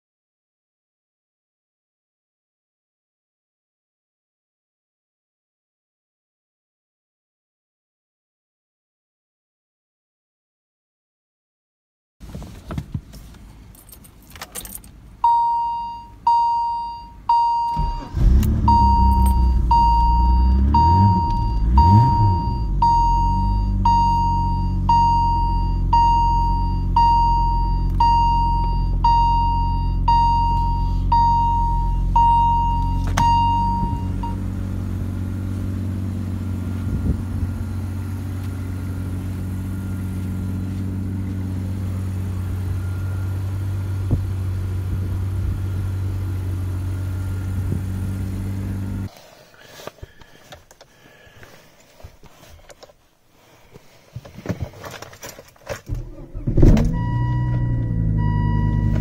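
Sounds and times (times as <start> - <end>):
car warning chime: 14.6 - 34.5, 56.9 - 59.0
car engine cold-starting: 17.3 - 49.1, 54.8 - 59.0
engine revving: 17.8 - 24.0, 33.2 - 49.1
car engine idling: 28.9 - 49.1.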